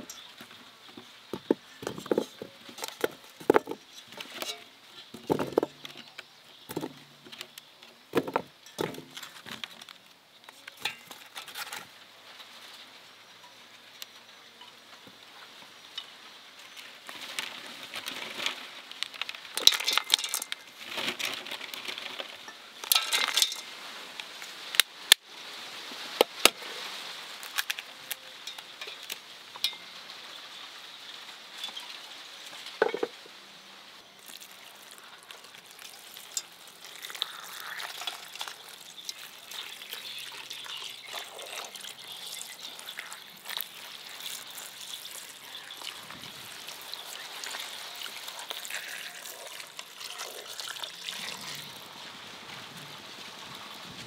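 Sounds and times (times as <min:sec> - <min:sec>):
utensil clinking in pan: 0:19.6 - 0:20.7, 0:22.9 - 0:23.7, 0:34.4 - 0:50.8
food sizzling in a pan: 0:28.3 - 0:53.4.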